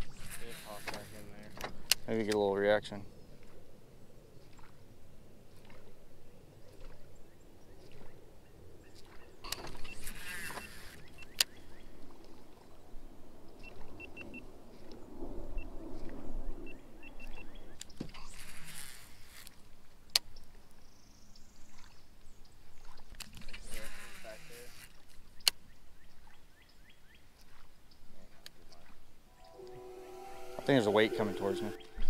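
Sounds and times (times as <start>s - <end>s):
reel engaging click: 0.2s - 2.5s, 9.5s - 11.6s
reel spool whirring: 9.6s - 11.5s, 23.6s - 24.9s.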